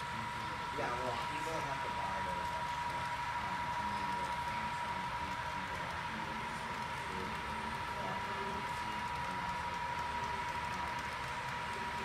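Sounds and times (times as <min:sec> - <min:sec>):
constant high whine: 0:00.0 - 0:12.0
model locomotive engine rumble: 0:00.0 - 0:12.0.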